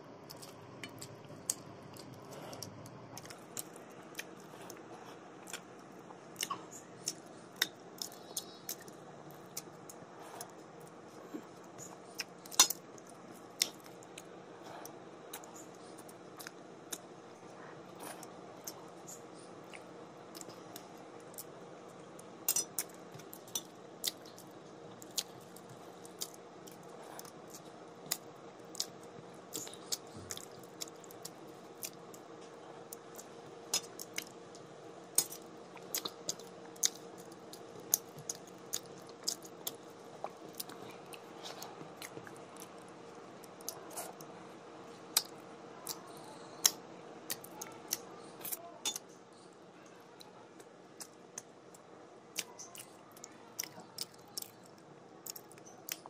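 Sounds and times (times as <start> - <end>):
faint steady hum: 0.0 - 56.0
chewing smacks: 22.5 - 32.2, 35.2 - 44.3.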